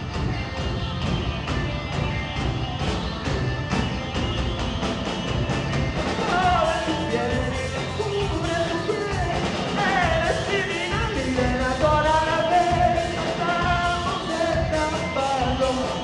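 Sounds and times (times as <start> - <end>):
drum kit: 0.0 - 16.0
electric guitars: 0.0 - 16.0
man singing: 6.2 - 16.0.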